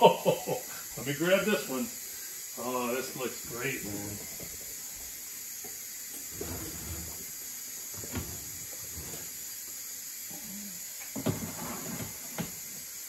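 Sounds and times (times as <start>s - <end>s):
steady hiss: 0.0s - 13.0s
pan scraping on oven rack: 6.3s - 7.2s, 8.0s - 9.3s, 11.3s - 12.2s.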